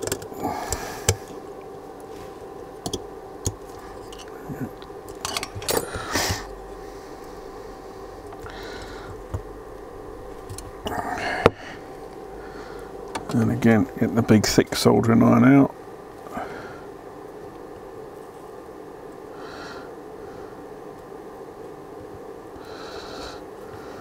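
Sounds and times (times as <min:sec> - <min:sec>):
low hum: 0:00.0 - 0:24.0
hand tools clicking and scraping: 0:02.8 - 0:06.5.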